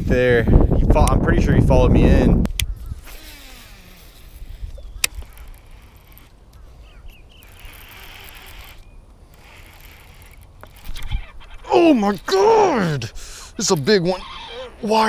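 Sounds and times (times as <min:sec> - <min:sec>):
wind rumble on microphone: 0:00.0 - 0:03.1, 0:04.2 - 0:05.9, 0:10.8 - 0:11.7
reel sharp click: 0:02.5 - 0:11.7
rod and reel handling noise: 0:02.5 - 0:12.3.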